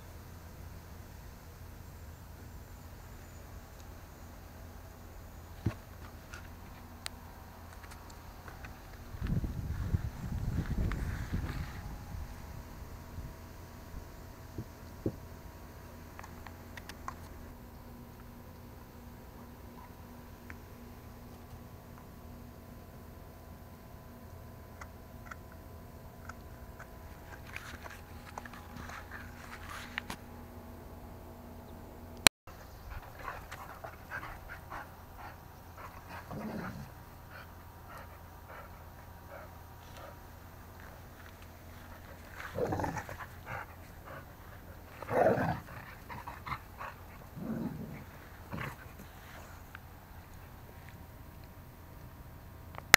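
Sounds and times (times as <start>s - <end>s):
faint steady hum: 0.0s - 52.9s
dogs play-fighting: 26.2s - 30.2s, 32.5s - 51.0s.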